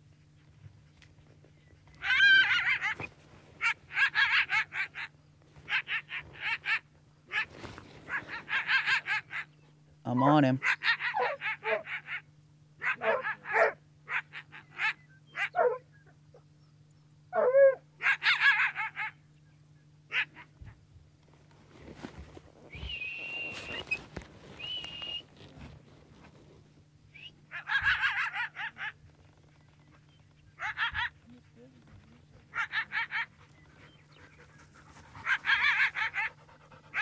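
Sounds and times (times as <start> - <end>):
coyote barking and yipping: 1.9 - 16.4, 17.3 - 19.2, 20.1 - 20.8, 27.2 - 37.0
rustling: 7.3 - 8.4, 21.3 - 26.9.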